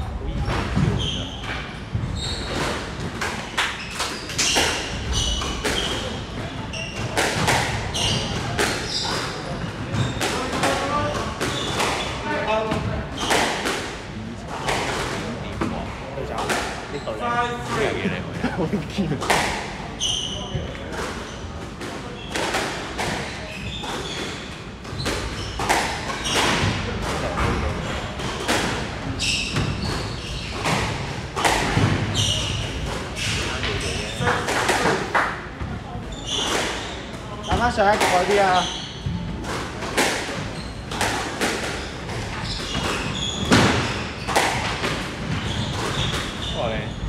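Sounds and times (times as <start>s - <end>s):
shoes squeaking on floor: 0.3s - 13.6s, 19.9s - 39.6s, 40.3s - 47.0s
squash ball hits: 7.0s - 9.3s, 24.9s - 28.9s, 29.5s - 36.9s, 37.5s - 46.4s.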